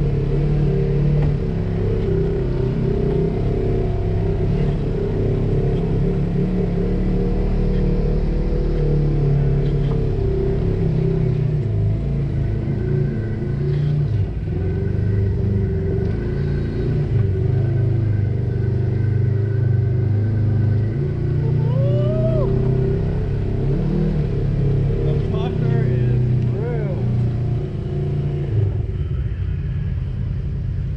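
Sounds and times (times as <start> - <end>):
off-road vehicle engine crawling: 0.0 - 30.9.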